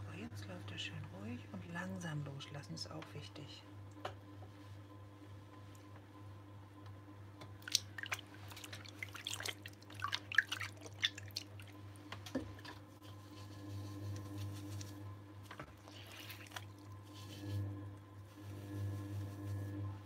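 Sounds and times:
potter's wheel humming: 0.0s - 20.0s
wet clay squelching: 7.6s - 11.8s, 15.7s - 17.5s.

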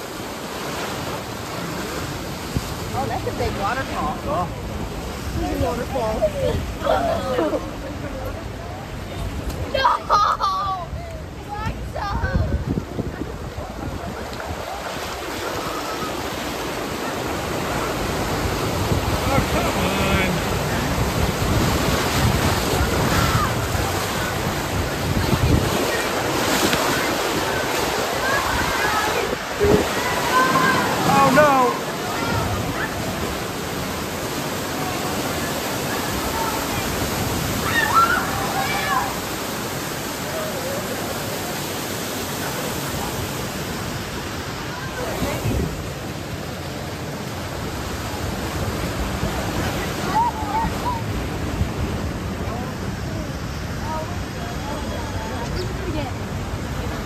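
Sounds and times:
white water rushing: 0.0s - 57.0s
wind buffeting microphone: 10.4s - 39.8s, 42.6s - 46.5s.

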